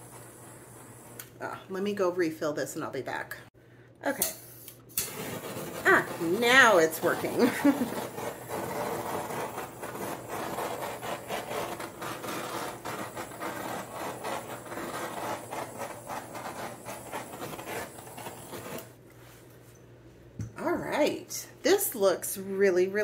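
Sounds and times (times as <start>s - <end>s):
torch flame hissing: 0.0s - 1.6s, 4.9s - 19.0s.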